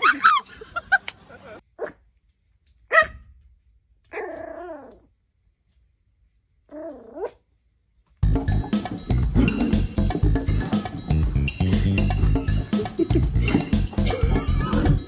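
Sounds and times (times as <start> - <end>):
puppy barking: 2.9 - 3.3.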